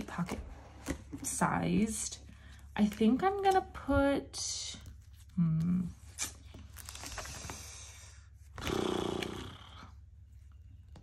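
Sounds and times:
plastic sleeves rustling: 0.0s - 8.6s.

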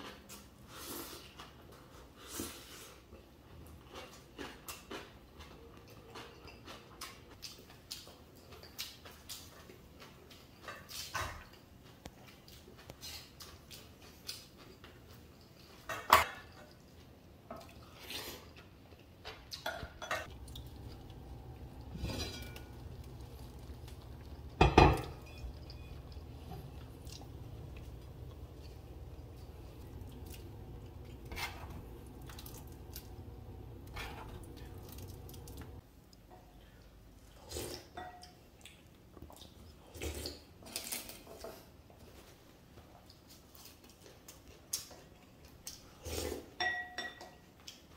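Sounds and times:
utensils clinking against bowls: 19.6s - 35.8s, 46.6s - 47.5s
utensils clattering: 19.7s - 35.8s
pot boiling rumble: 20.2s - 35.8s.

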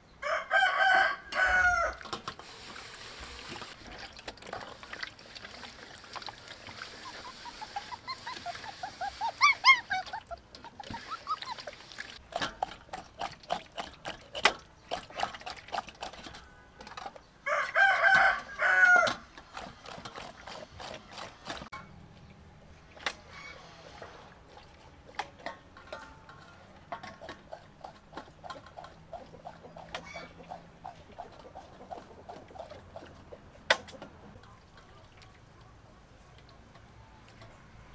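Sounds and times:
rooster crowing: 0.2s - 2.0s, 17.4s - 19.2s
wet clicks and scrapes: 10.1s - 18.4s, 19.1s - 21.8s, 23.9s - 35.4s
knife cutting meat in metal basin: 12.2s - 17.2s, 19.4s - 21.8s.

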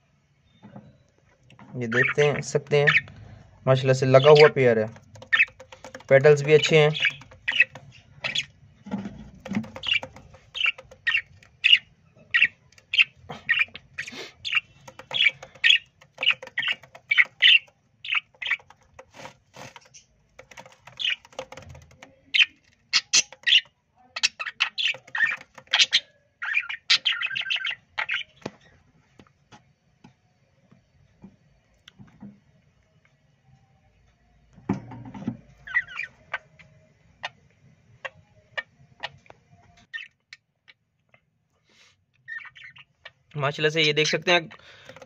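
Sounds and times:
budgerigars chirping: 1.9s - 3.1s, 4.1s - 8.5s, 9.4s - 19.8s, 20.4s - 28.4s.

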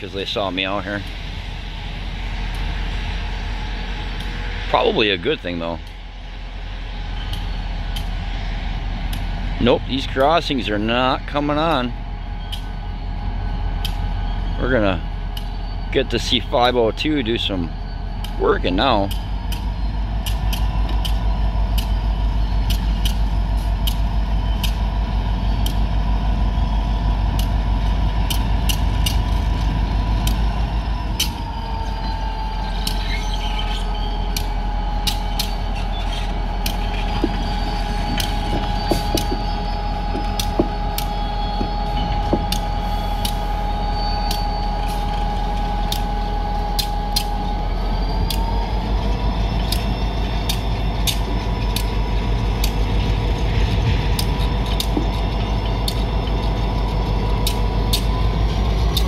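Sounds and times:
diesel locomotive engine droning: 0.0s - 59.0s
sharp clicks: 22.6s - 24.0s, 49.6s - 52.0s, 54.1s - 58.1s.

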